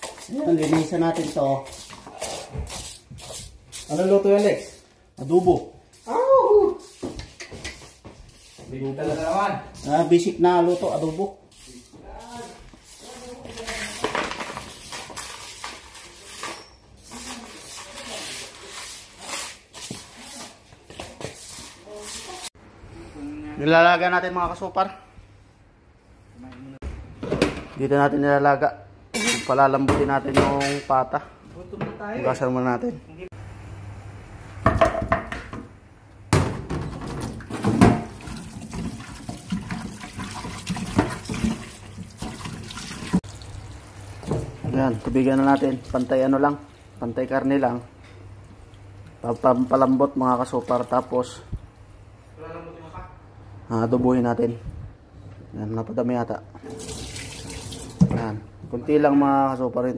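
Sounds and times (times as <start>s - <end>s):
broom swishing on tiled floor: 0.0s - 22.6s
splashing and rubbing meat: 7.9s - 22.5s, 37.3s - 47.1s
tap water running into pot: 37.4s - 45.8s, 56.6s - 58.2s.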